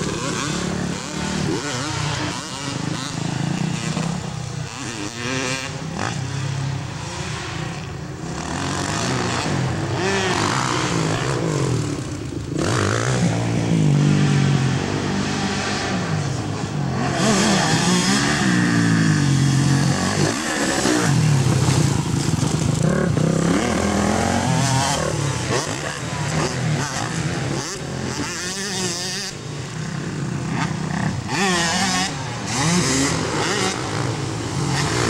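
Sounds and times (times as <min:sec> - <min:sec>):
motocross bike engines revving: 0:00.0 - 0:35.0.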